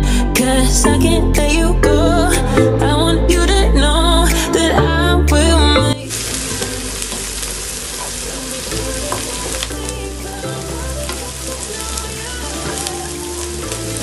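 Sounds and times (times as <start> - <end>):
music: 0.0 - 14.0
onions sizzling in hot oil: 6.1 - 14.0.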